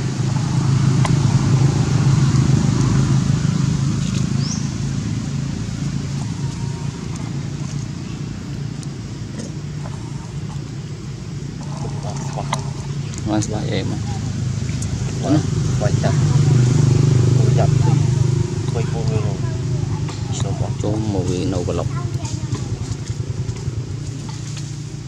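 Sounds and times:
loud low motor hum: 0.0 - 25.0.

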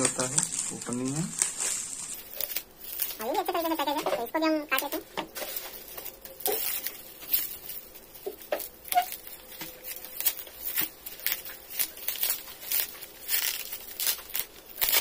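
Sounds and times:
bubble wrap crinkling: 0.0 - 15.0.

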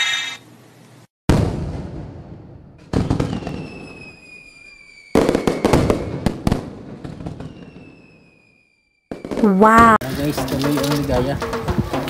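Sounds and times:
fireworks bursts: 1.3 - 8.5, 9.1 - 10.0
fireworks crackling: 2.9 - 8.2
high whistle falling in pitch: 3.3 - 6.2, 7.4 - 9.0.

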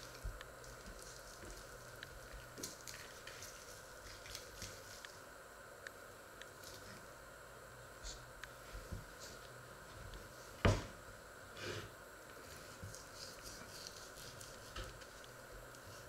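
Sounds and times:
steady background hum: 0.0 - 16.0
loud knock on cutting board: 10.6 - 11.0.

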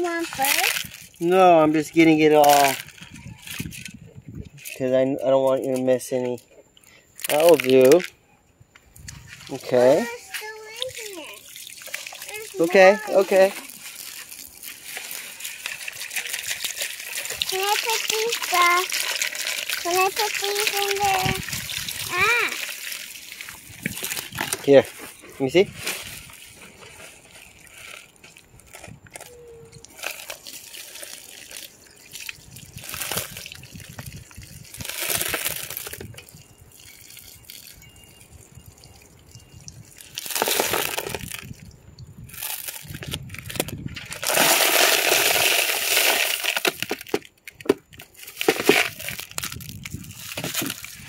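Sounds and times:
rocks clattering into plastic colander: 2.2 - 3.0, 40.2 - 41.5, 42.4 - 51.0.

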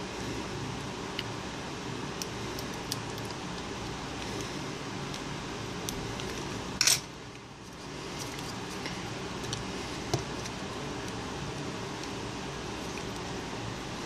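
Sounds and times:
steady background hum: 0.0 - 14.0
metal tweezers clattering on bench: 6.8 - 7.1.

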